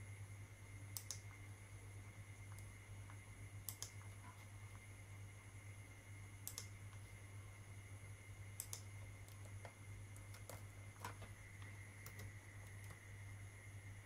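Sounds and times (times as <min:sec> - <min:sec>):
low electrical hum: 0:00.0 - 0:14.0
computer mouse clicks: 0:00.9 - 0:01.4, 0:02.5 - 0:04.5, 0:06.4 - 0:07.0, 0:08.6 - 0:13.0.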